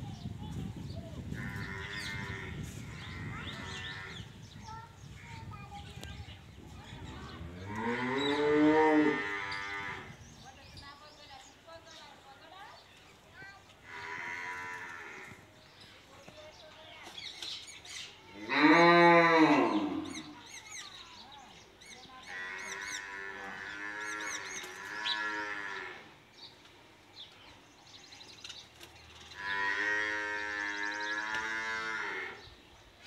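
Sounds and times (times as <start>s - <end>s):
sparrows chirping: 0.0s - 33.0s.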